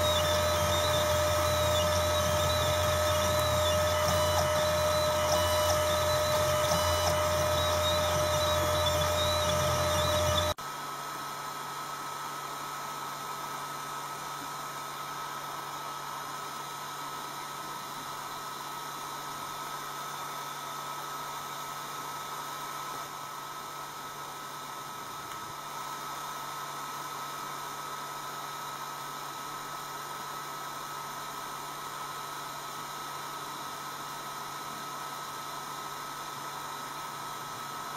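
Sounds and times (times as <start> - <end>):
engraving machine motor whine: 0.0 - 10.6
steady hiss with high whine: 0.0 - 37.9.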